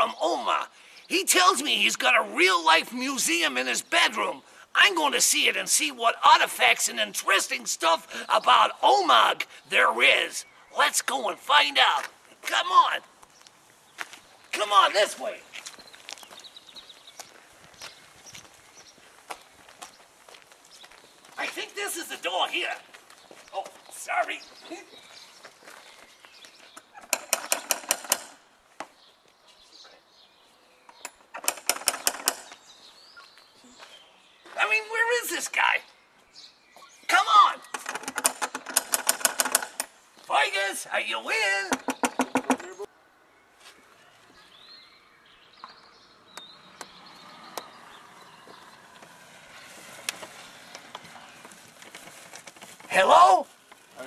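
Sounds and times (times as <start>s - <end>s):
small bird chirping: 15.6s - 19.1s, 29.0s - 34.6s, 35.8s - 37.7s, 43.6s - 49.9s
sharp clicks: 26.8s - 28.4s, 30.9s - 32.6s, 37.6s - 40.0s, 41.7s - 42.7s
door knocker knocking: 41.7s - 42.6s.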